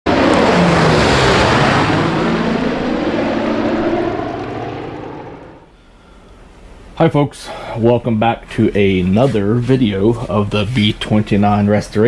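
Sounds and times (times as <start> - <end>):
propeller aircraft engines droning: 0.1 - 5.8.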